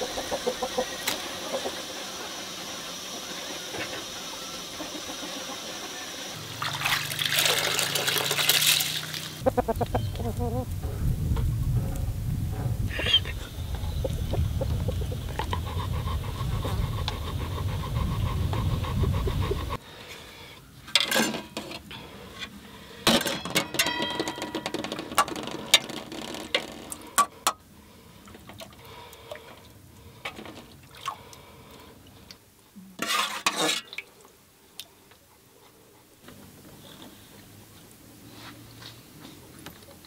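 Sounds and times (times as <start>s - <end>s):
low steady rumble: 9.4s - 19.8s
metal spoon scraping pots: 33.0s - 33.9s.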